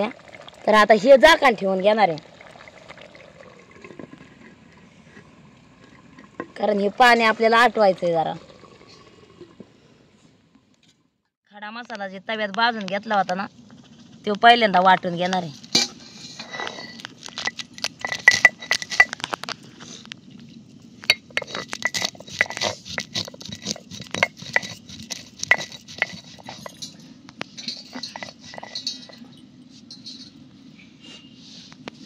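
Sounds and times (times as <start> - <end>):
glass bangles clinking: 16.6 - 19.2, 21.1 - 22.7, 27.6 - 30.4
stone roller crunching spices: 20.5 - 29.3.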